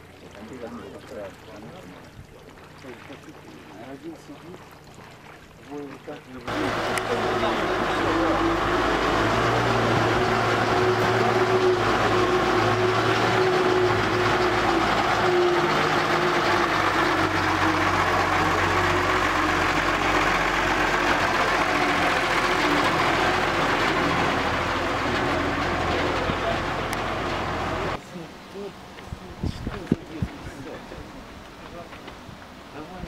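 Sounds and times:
truck engine passing: 6.5 - 28.0.

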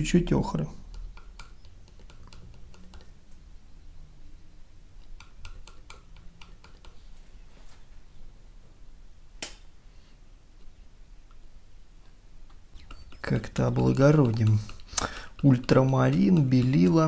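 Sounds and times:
palette knife clicking: 12.8 - 17.0.

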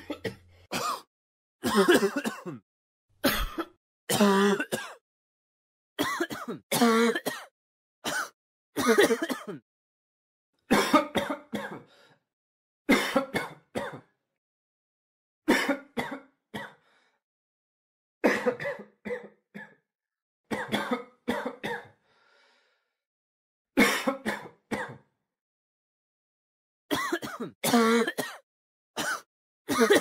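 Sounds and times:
person coughing: 0.0 - 2.6, 3.2 - 5.0, 6.0 - 9.6, 10.7 - 11.8, 12.9 - 14.1, 15.5 - 16.8, 18.2 - 19.8, 20.5 - 22.0, 23.8 - 25.0, 26.9 - 28.4, 29.0 - 30.0.

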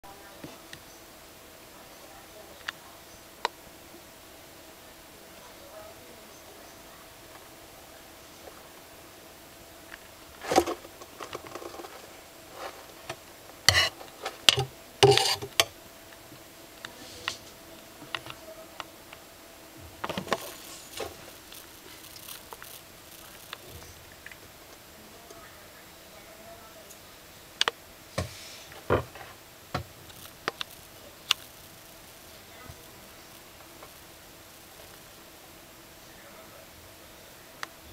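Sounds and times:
gecko chewing clicks and crackles: 20.3 - 24.8, 30.0 - 35.2.

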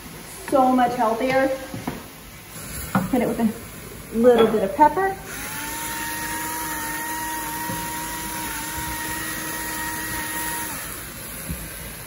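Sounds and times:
pepper grinder motor running: 5.2 - 12.0.

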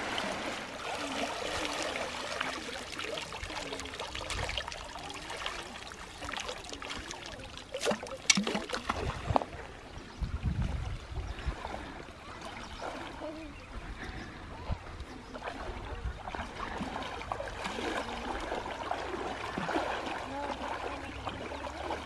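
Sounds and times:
water trickling through nets: 0.0 - 9.6, 15.5 - 22.0
sharp water splashes: 0.0 - 9.7, 15.4 - 22.0.

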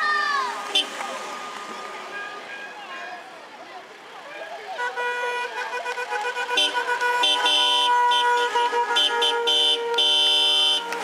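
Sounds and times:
car horns honking: 0.6 - 2.8, 4.8 - 11.0.

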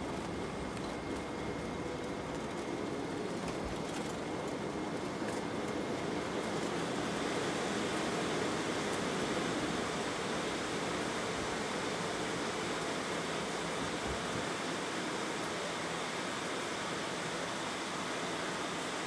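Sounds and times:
airliner cabin airflow noise: 0.0 - 19.0
quiet jet engines: 0.0 - 19.0.

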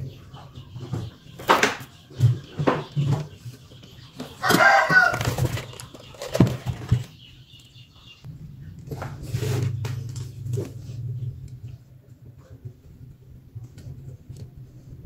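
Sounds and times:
steady low hum: 8.1 - 15.0.

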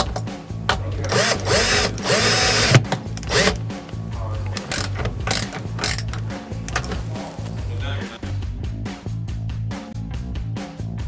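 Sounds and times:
cordless drill running: 1.1 - 3.6.

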